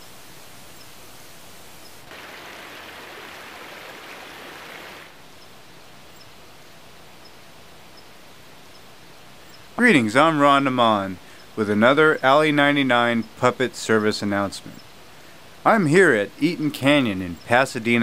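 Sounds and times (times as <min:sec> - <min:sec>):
background hiss: 0:00.0 - 0:18.0
creek water running over rocks: 0:02.0 - 0:05.2.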